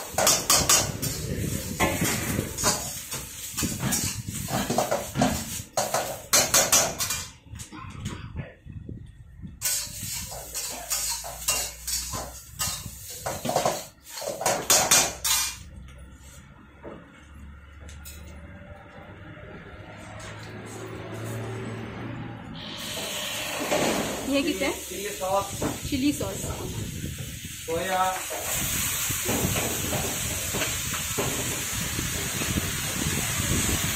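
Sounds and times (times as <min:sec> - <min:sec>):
metal spatula scraping iron pan: 0:09.6 - 0:15.6.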